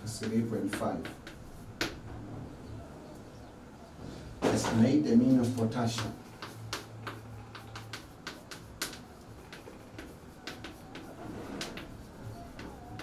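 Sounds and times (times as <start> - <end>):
chalk writing on blackboard: 0.0 - 2.0, 5.3 - 13.0.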